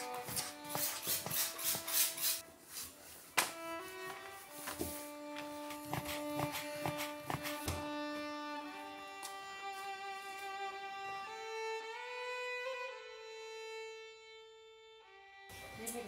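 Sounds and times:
violin music: 0:00.0 - 0:16.0
knife chopping dough on board: 0:05.8 - 0:07.8.

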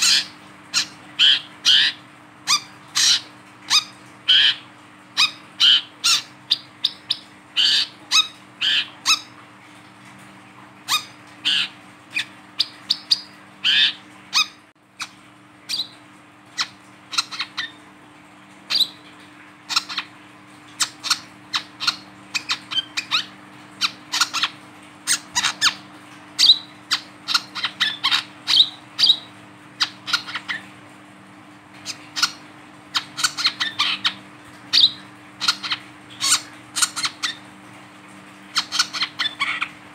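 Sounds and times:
bird chirping calls: 0:00.0 - 0:04.6, 0:05.2 - 0:09.4, 0:10.9 - 0:16.0, 0:19.7 - 0:20.1, 0:26.4 - 0:30.7, 0:33.0 - 0:37.5.

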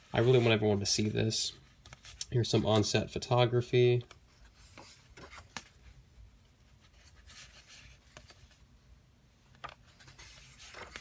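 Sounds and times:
book pages rustling: 0:01.7 - 0:03.0, 0:04.1 - 0:06.0, 0:06.6 - 0:08.7, 0:09.4 - 0:11.0.

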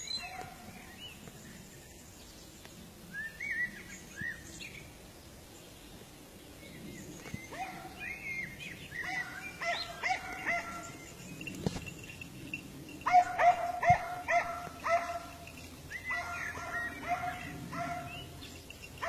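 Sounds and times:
dogs baying in short yelps: 0:13.0 - 0:15.4.

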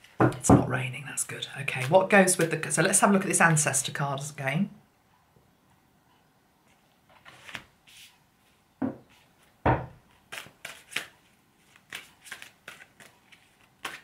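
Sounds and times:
cards flicking and snapping: 0:10.3 - 0:11.1, 0:11.7 - 0:14.0.

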